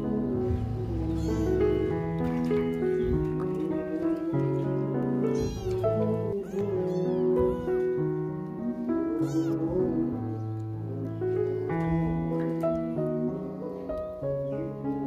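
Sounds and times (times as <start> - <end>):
piano music: 0.0 - 15.0
kitten meowing: 0.8 - 2.0, 5.2 - 7.9, 9.1 - 9.9.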